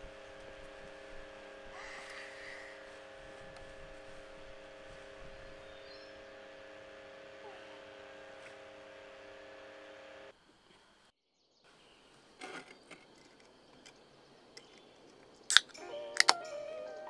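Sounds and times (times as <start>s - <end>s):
steady hum with tones: 0.0s - 11.1s
can tab cracking open: 15.5s - 16.5s.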